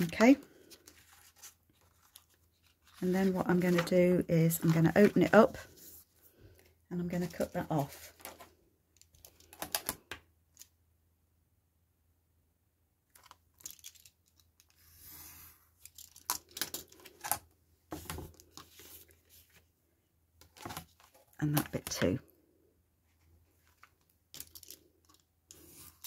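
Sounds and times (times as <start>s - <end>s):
clicks and rustles of handling: 0.0s - 10.7s, 13.1s - 14.8s, 15.8s - 19.6s, 23.1s - 26.0s.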